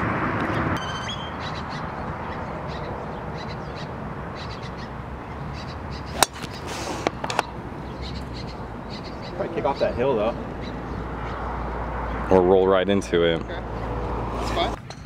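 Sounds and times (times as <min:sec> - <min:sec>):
outdoor noise: 0:00.0 - 0:15.0
birds chirping: 0:00.4 - 0:15.0
golf club striking ball: 0:06.2 - 0:07.4.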